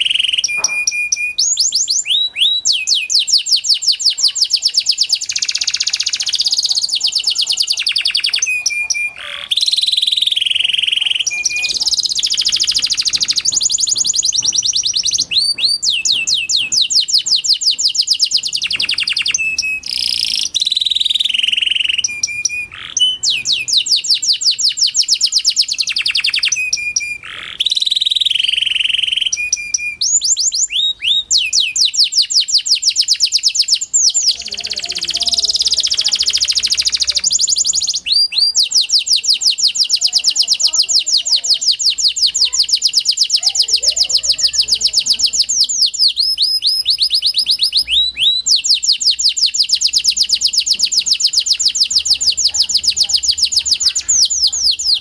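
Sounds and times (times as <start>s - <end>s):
canary singing trills: 0.0s - 55.0s.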